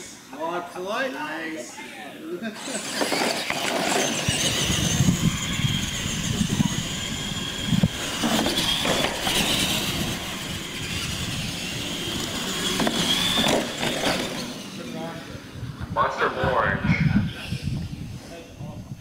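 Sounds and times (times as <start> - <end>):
tyres rumbling on concrete: 2.6 - 14.9
electric motor whine: 2.6 - 15.9.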